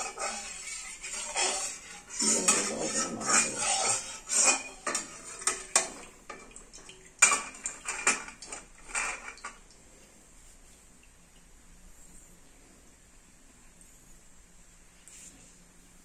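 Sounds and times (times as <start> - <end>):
metal spatula scraping pan: 0.0 - 6.5, 7.2 - 9.6.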